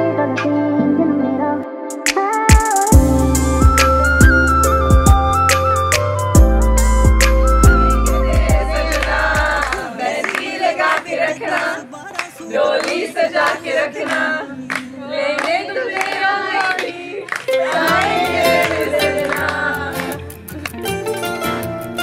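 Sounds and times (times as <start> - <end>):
backing music bass: 2.9 - 9.8
group of voices singing: 7.7 - 20.3
hand claps: 8.9 - 22.0.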